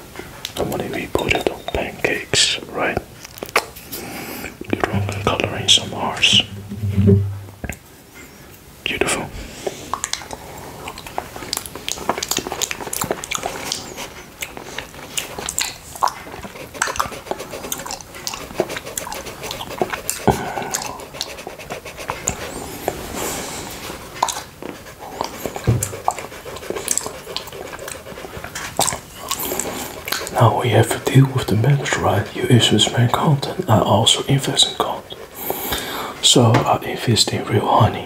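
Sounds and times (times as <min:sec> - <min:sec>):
wet licks and smacks: 0:24.2 - 0:30.4.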